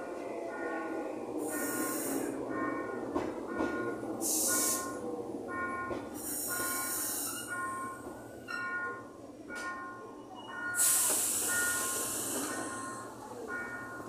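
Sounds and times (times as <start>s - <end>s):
train wheels rumbling on rails: 0.0s - 14.0s
high fixed-pitch train squeal: 6.2s - 8.6s, 10.2s - 13.1s
loud bursts of hiss: 10.8s - 12.5s.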